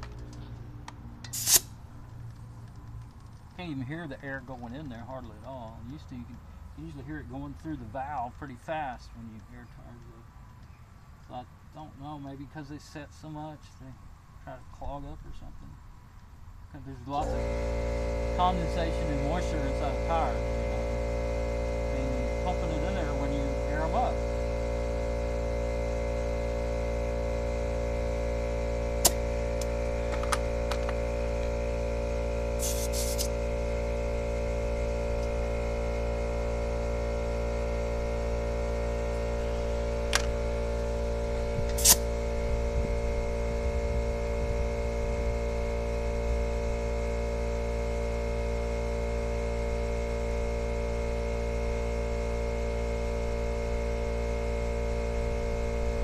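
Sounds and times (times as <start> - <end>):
sharp clicks of inflator chuck: 0.0 - 3.6, 29.0 - 31.6, 32.6 - 33.4, 40.0 - 40.4, 41.6 - 42.2
air compressor humming: 0.0 - 12.2, 14.9 - 56.0
short air hisses: 1.2 - 1.8, 32.5 - 33.4, 41.7 - 42.2.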